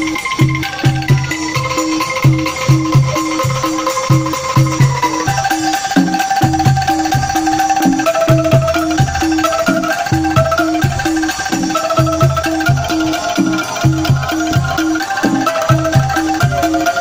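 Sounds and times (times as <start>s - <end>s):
bamboo angklung music: 0.0s - 17.0s.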